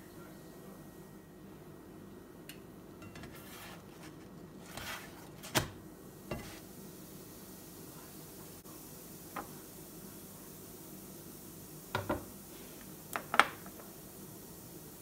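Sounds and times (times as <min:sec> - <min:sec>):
spatula scraping frying pan: 0:03.1 - 0:05.4.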